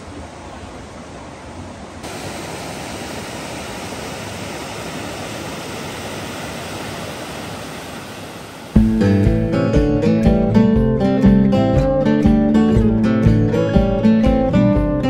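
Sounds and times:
waterfall rushing: 0.1 - 8.8.

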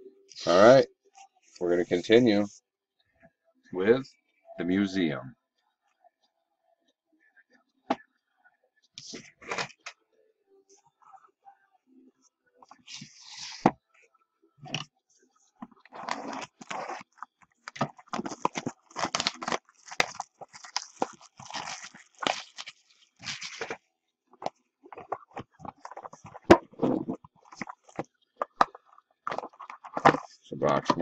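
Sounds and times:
plastic wrap tearing and crinkling: 15.8 - 23.8, 24.4 - 30.4.

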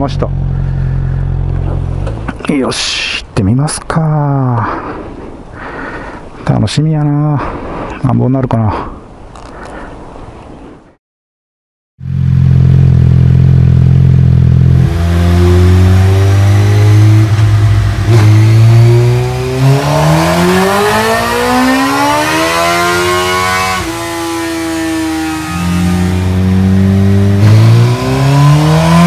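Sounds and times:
motorcycle engine revving on dynamometer: 12.0 - 29.0.

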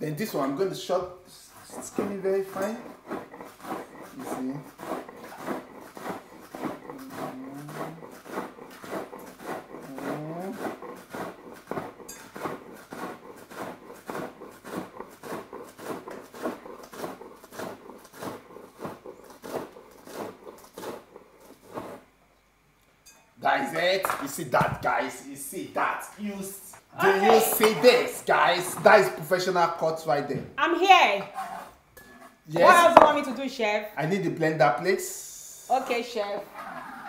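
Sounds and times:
knife chopping on wooden board: 1.7 - 22.0, 32.6 - 33.1.

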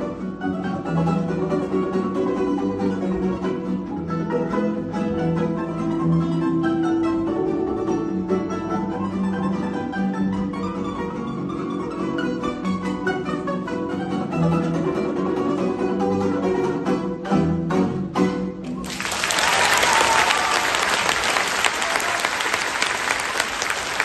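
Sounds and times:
balalaika ensemble playing: 0.0 - 24.0
audience applause: 18.7 - 24.0.

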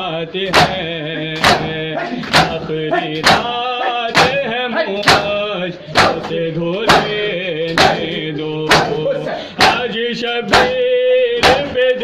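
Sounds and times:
men chanting a lament: 0.0 - 12.0
hand slapping chest: 0.5 - 2.6, 3.2 - 4.4, 5.0 - 9.0, 9.6 - 9.9, 10.5 - 10.8, 11.4 - 11.8.

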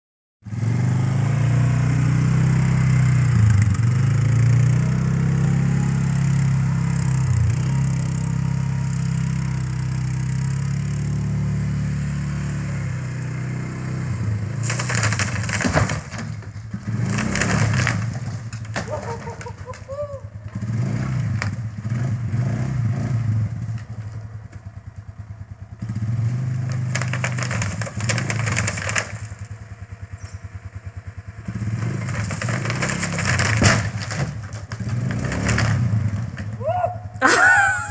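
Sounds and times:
atv engine revving: 0.4 - 37.9
rough crackling clatter: 14.3 - 22.3, 23.0 - 36.7.

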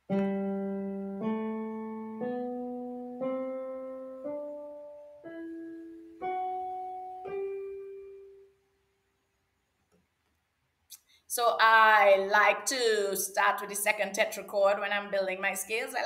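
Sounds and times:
piano playing a rising scale: 0.0 - 8.6.

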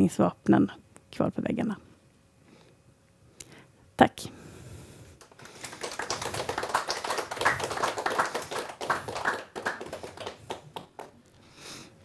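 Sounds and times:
audience applauding: 5.2 - 11.2.

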